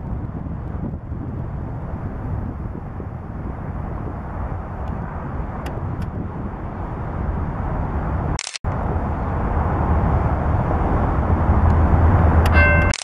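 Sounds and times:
diesel locomotives rumbling: 0.0 - 13.0
brief click: 12.4 - 13.0.

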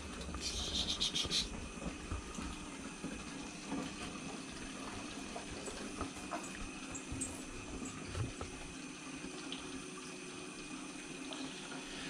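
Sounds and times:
hissy water spatter: 0.0 - 2.4
water trickling: 0.0 - 12.0.

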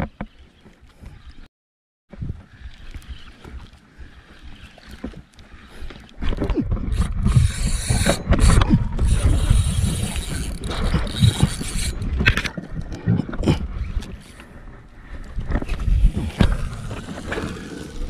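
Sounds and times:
wind buffeting microphone: 2.1 - 3.4, 6.4 - 14.2, 15.3 - 18.0.

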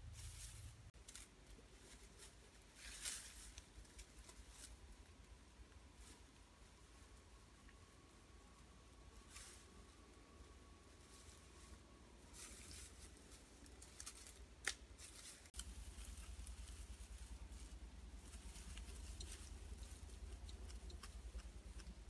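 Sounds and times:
dry grass and leaves rustling: 0.0 - 22.0
low rumble: 15.6 - 22.0.

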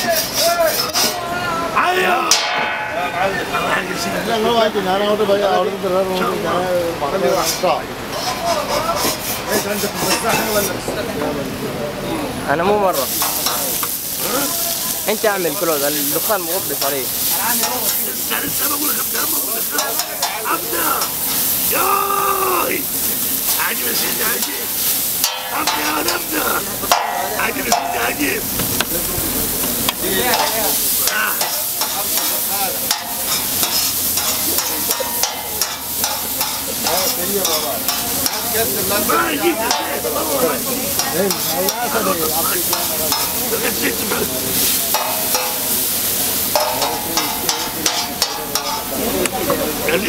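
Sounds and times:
metal ladle scraping and clanking: 7.4 - 10.4, 32.9 - 38.4
meat sizzling in a pan: 12.9 - 50.0.

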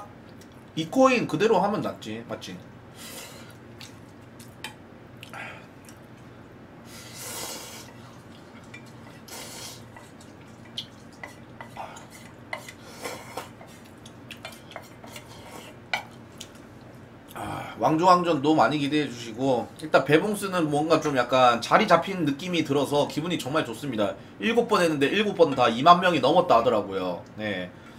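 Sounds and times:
slurping noodles: 6.9 - 8.2, 9.1 - 10.0.

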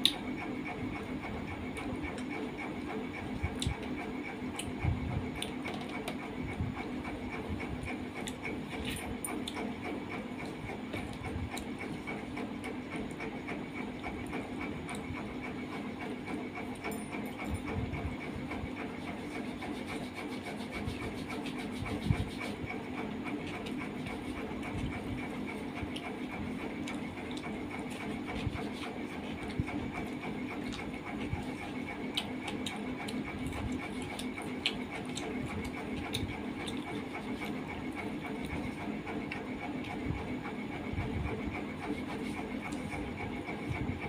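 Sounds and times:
steady background hum: 0.0 - 44.0
hand mixing rice on steel plate: 18.1 - 43.7
chewing: 29.4 - 40.0.

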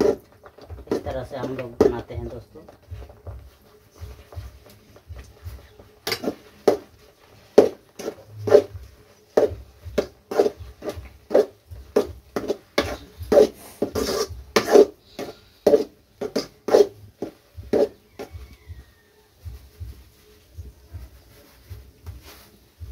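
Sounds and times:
skimmer scraping a steel pan: 10.3 - 17.0.

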